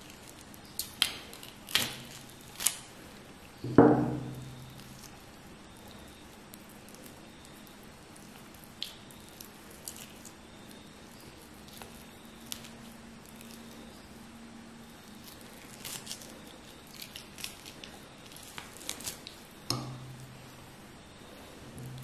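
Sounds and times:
wet sticky skin peeling: 15.0s - 20.3s.

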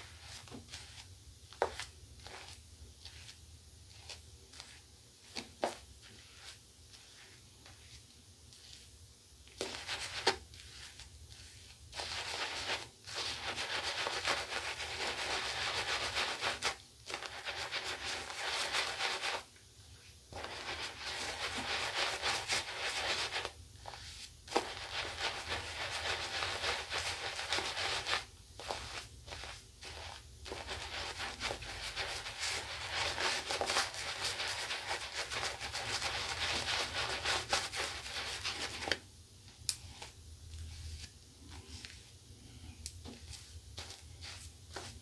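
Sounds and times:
shaving brush scratching stubble: 9.6s - 19.4s, 20.3s - 39.0s.

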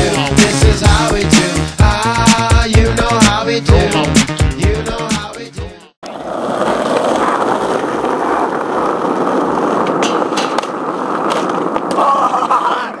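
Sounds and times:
skateboard clacks: 6.0s - 13.0s
skateboard wheels rolling on asphalt: 6.0s - 13.0s.

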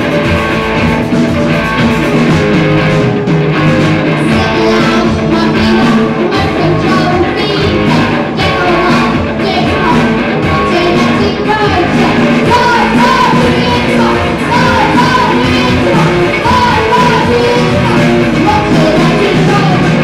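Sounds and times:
rock band playing: 0.0s - 20.0s
lead singer vocals: 4.2s - 20.0s.

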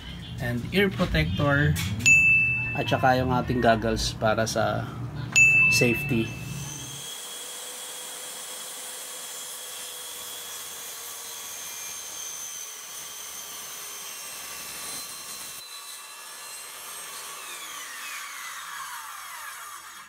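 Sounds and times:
saw motor whine: 5.4s - 20.0s
circular saw cutting wood: 5.8s - 20.0s.

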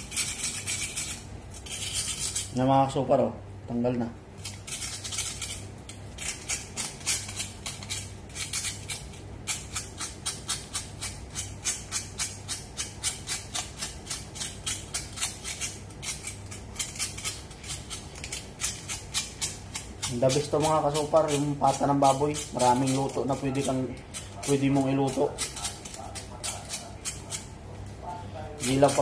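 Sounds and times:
rasping scrapes of skin: 0.0s - 2.5s, 4.4s - 27.6s, 28.6s - 29.0s.

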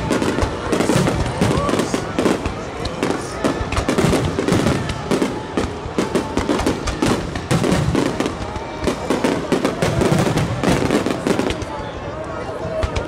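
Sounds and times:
fireworks bursting: 0.0s - 13.0s.

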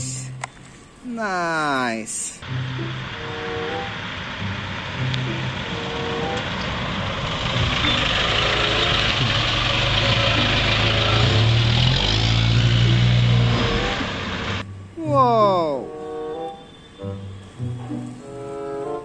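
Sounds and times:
road noise: 0.0s - 19.0s
truck engine idling: 2.4s - 14.6s.

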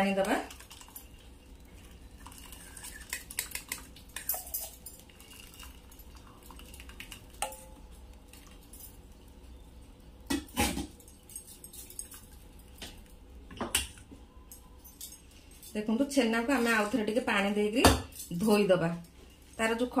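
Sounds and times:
liquid pouring: 0.0s - 9.4s
metal pot and strainer clinking: 2.6s - 7.8s.

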